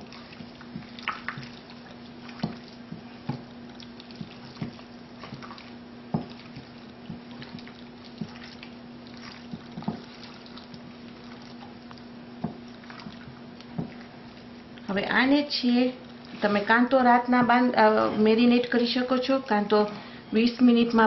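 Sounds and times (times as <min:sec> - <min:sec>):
wet squelching of kneaded meat: 0:00.0 - 0:14.9
faint steady hum: 0:00.0 - 0:21.0.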